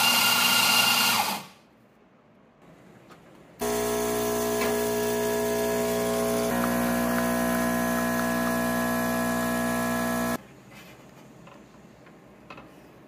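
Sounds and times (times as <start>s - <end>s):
electric coffee grinder whirring: 3.6s - 10.4s
espresso machine pump humming: 3.6s - 10.4s.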